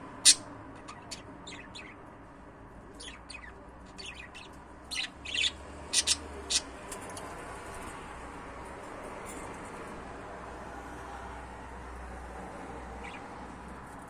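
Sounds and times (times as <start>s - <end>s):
budgerigar chirping: 0.2s - 2.0s, 3.0s - 6.7s.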